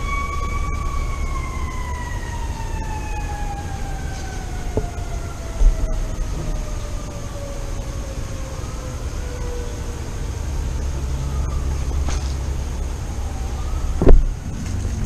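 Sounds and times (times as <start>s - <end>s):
siren wailing and winding down: 0.0s - 15.0s
steady low rumble: 0.0s - 15.0s
short thud: 14.0s - 14.3s.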